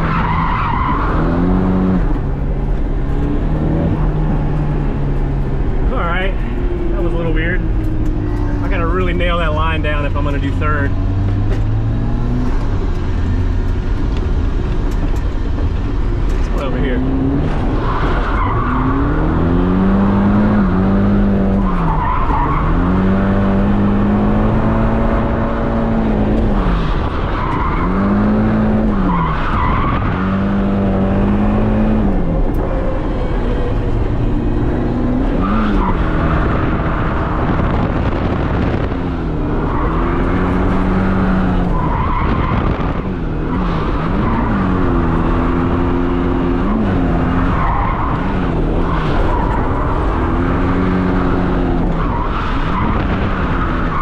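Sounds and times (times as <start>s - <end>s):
car engine revving: 0.0s - 54.0s.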